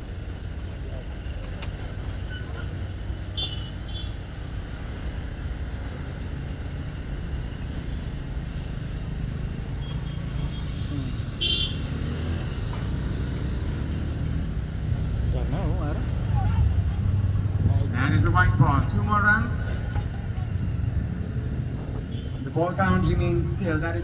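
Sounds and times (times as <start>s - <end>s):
low outdoor rumble: 14.2s - 24.0s.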